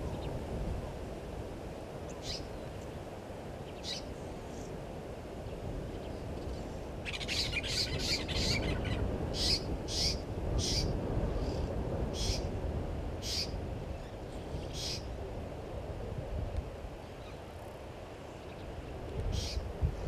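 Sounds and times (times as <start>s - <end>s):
birds making harsh high calls: 7.1s - 10.9s, 14.7s - 15.1s.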